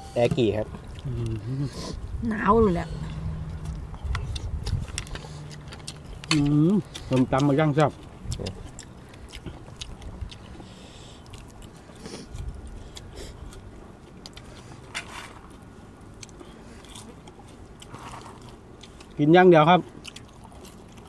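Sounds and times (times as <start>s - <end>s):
chewing and mouth sounds: 0.3s - 21.0s.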